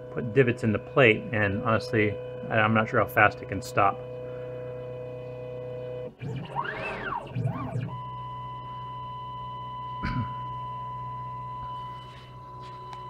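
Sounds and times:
machine motors whining: 0:00.0 - 0:13.0.

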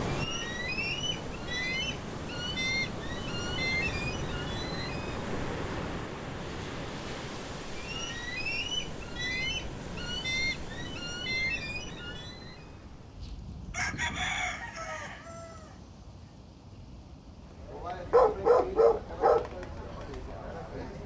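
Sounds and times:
small birds chirping: 0:00.0 - 0:05.4, 0:07.6 - 0:12.9
rooster crowing: 0:13.7 - 0:15.9.

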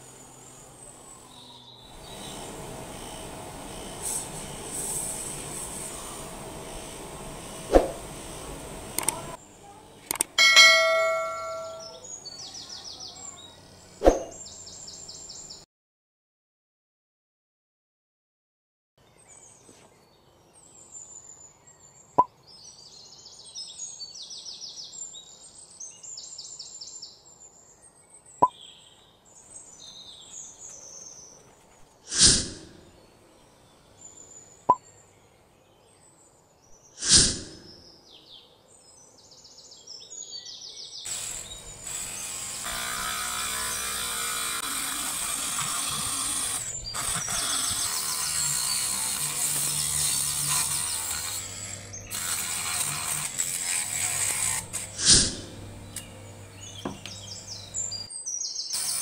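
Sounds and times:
rotary tool grinding wood: 0:00.0 - 0:09.4, 0:41.1 - 0:58.1, 0:58.8 - 0:59.0
birds chirping: 0:00.0 - 0:15.6, 0:19.0 - 0:50.0, 0:50.6 - 0:59.0
sharp clicks: 0:08.9 - 0:09.3, 0:10.0 - 0:10.4
swishes: 0:14.0 - 0:14.4.

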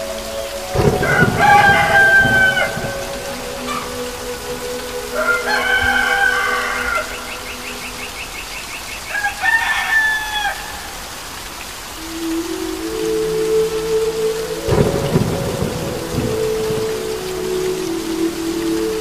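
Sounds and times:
rain falling: 0:00.0 - 0:19.0
rooster crowing: 0:01.0 - 0:04.0, 0:05.1 - 0:07.6, 0:09.1 - 0:11.0.

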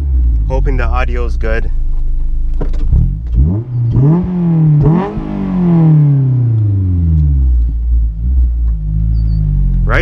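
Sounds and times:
car exhaust revving: 0:00.0 - 0:10.0.

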